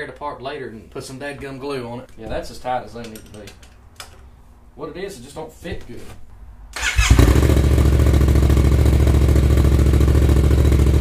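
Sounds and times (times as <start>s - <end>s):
motorcycle starter cranking: 6.8s - 7.9s
motorcycle engine idling: 6.8s - 11.0s.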